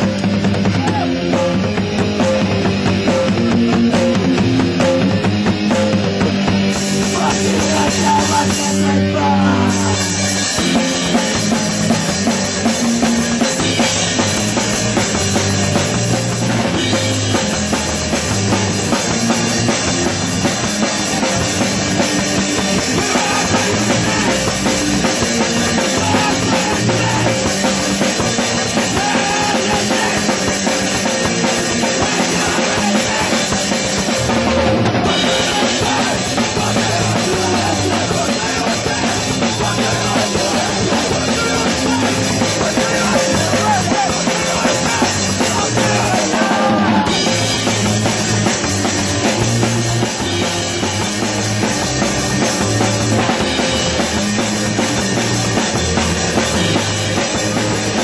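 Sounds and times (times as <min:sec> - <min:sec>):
live rock band playing: 0:00.0 - 0:58.0
drum kit kick and snare: 0:09.8 - 0:58.0.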